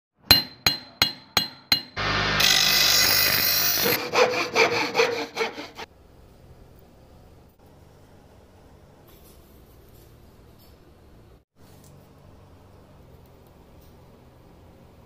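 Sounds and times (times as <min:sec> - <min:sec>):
fast saw strokes: 0:02.0 - 0:05.9.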